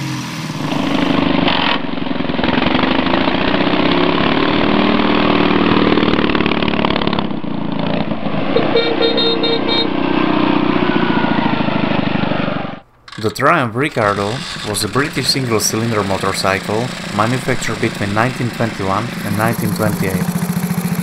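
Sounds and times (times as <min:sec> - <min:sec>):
motorcycle engine revving: 0:00.0 - 0:21.0
short high beeps: 0:08.6 - 0:09.9.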